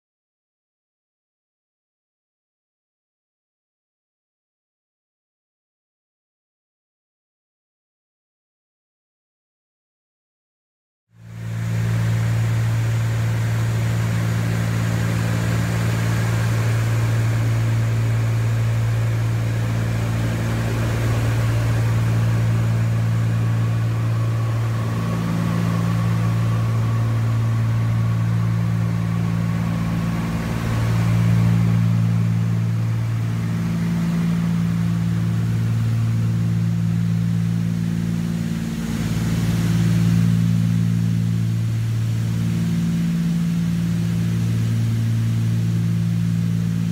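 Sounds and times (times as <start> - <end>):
airplane engines droning in cabin: 11.2 - 46.9.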